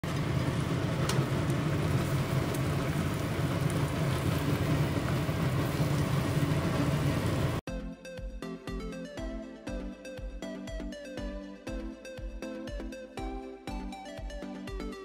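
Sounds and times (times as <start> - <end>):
chicken sizzling in sauce: 0.0 - 7.6.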